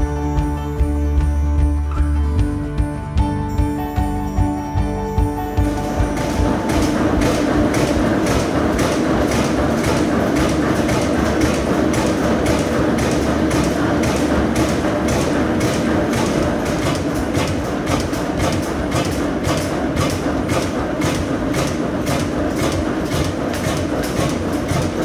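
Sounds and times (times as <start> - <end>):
oil engine clattering: 5.6 - 25.0.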